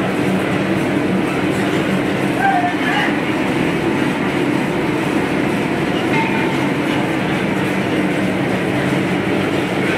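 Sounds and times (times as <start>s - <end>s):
mixer churning dough: 0.0s - 9.9s.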